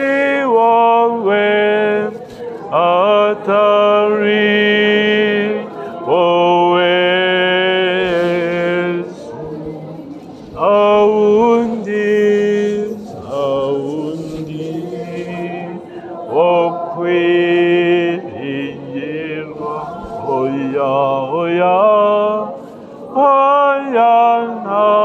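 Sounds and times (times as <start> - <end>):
man singing a chanted hymn: 0.0 - 25.0.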